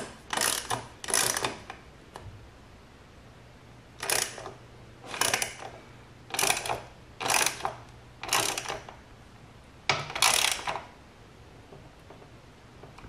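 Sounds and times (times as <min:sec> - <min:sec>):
socket ratchet clicking: 0:00.0 - 0:01.8, 0:04.0 - 0:08.9, 0:10.0 - 0:10.9.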